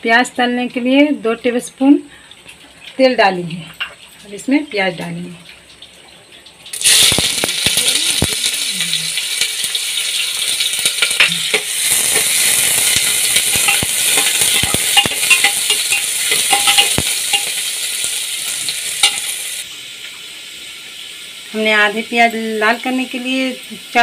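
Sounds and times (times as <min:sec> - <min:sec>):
onions sizzling in hot oil: 0:04.3 - 0:24.0
spoon scraping a pot: 0:10.8 - 0:17.6.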